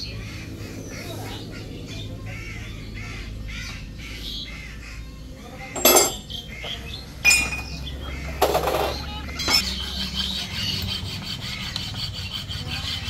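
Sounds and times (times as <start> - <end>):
birds chirping: 0.0 - 13.0
metallic clanks: 5.8 - 6.3, 7.2 - 7.8.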